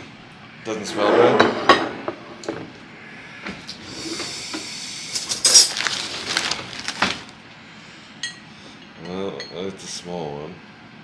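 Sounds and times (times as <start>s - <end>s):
plastic chip bag crinkling: 5.3s - 7.4s.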